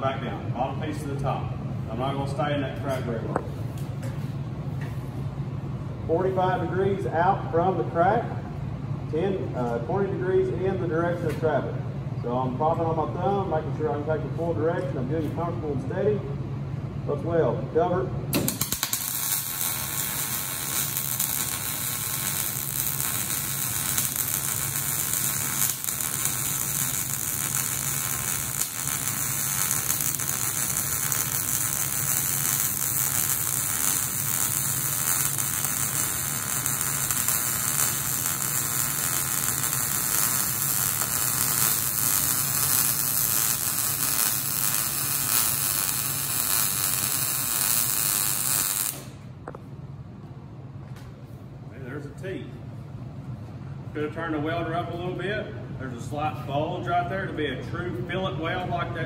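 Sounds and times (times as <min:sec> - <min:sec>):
welding arc crackling: 0:18.3 - 0:49.3.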